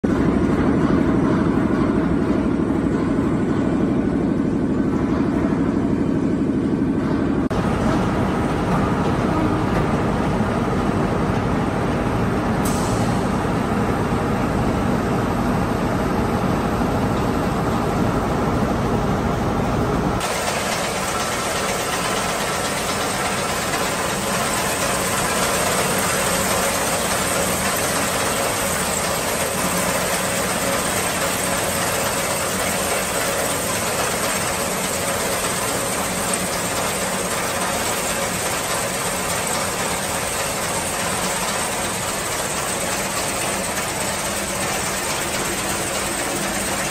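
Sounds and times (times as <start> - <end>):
shredder machine running loudly: 7.5 - 16.7, 20.2 - 46.9
hissing and rattling metal chips: 20.2 - 46.9.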